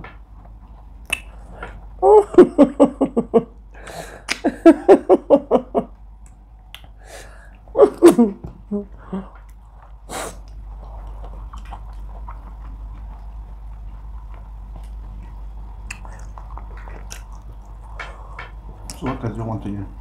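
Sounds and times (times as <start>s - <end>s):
person laughing: 2.0s - 5.9s, 7.7s - 9.3s
faint chewing: 9.0s - 19.1s.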